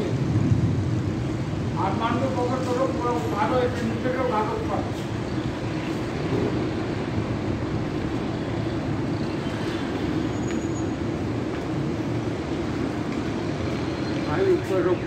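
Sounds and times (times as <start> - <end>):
air noise: 0.0 - 14.2
traffic rumble: 0.0 - 15.0.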